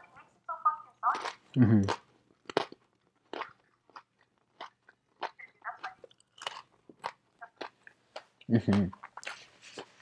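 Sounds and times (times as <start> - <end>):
crunchy food being chewed: 0.9 - 10.0.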